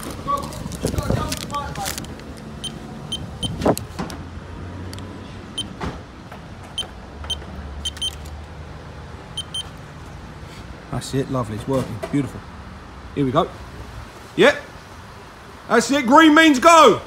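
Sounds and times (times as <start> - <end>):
keypad beeps: 2.6 - 3.6, 6.8 - 8.2, 9.4 - 9.7.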